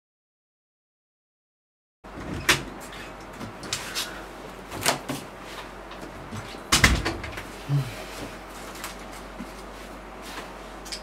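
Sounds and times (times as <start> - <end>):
wooden door opening and shutting: 2.1 - 2.7, 6.7 - 7.4.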